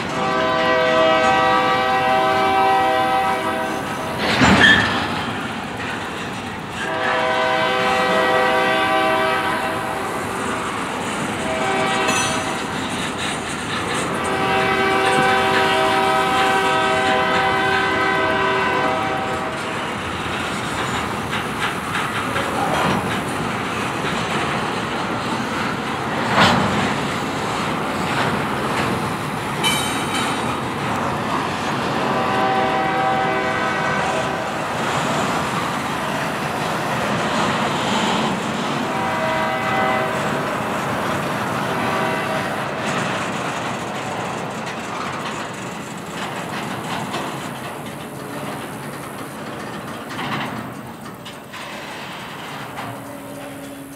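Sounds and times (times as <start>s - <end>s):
train air horn: 0.0s - 4.8s, 6.8s - 10.4s, 11.3s - 12.7s, 14.1s - 19.8s, 32.0s - 34.6s, 38.7s - 40.6s, 41.6s - 42.8s, 52.7s - 53.9s
train wheels clattering on rail joints: 0.0s - 53.9s.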